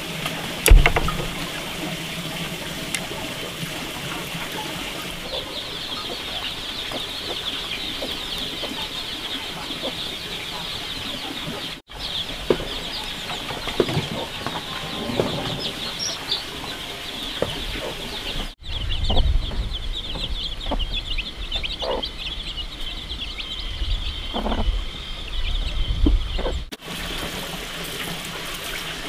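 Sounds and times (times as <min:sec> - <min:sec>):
hen clucking: 0:02.9 - 0:22.9, 0:24.2 - 0:24.7
chicks peeping: 0:03.7 - 0:26.7.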